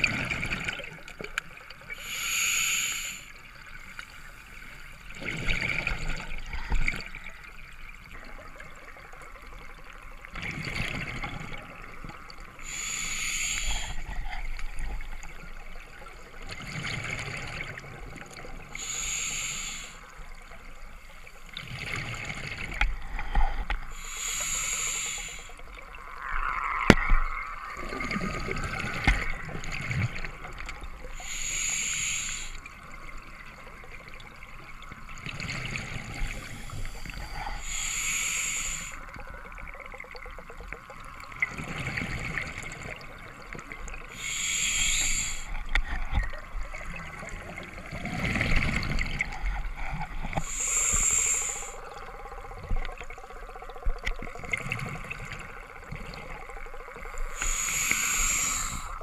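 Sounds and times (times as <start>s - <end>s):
regulator inhale hiss: 1.9s - 4.8s, 12.6s - 14.3s, 18.8s - 20.3s, 23.1s - 25.7s, 31.1s - 32.8s, 36.2s - 39.2s, 44.1s - 46.2s, 49.4s - 52.0s, 57.1s - 59.0s
exhaled bubbles rumbling: 25.6s - 31.3s, 45.1s - 57.7s.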